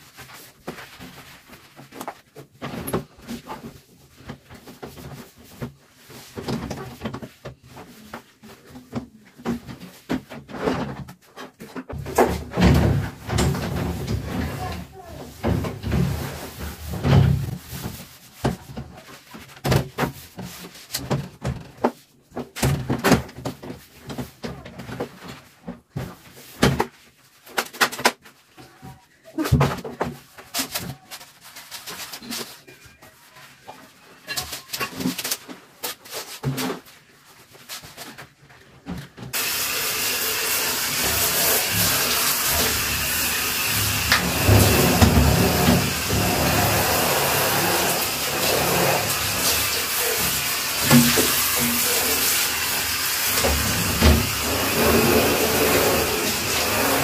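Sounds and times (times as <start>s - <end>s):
loud steady hiss: 39.4s - 57.0s.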